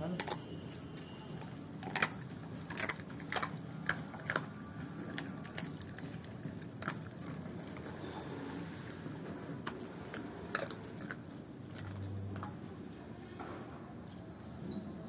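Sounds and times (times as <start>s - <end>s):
dog crunching bones: 0.0s - 12.8s.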